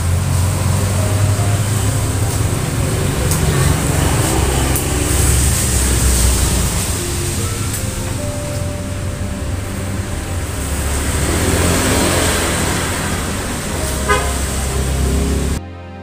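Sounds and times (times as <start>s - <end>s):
car passing: 0.0s - 15.6s
low traffic rumble: 0.0s - 15.6s
car horn toot: 11.0s - 15.6s.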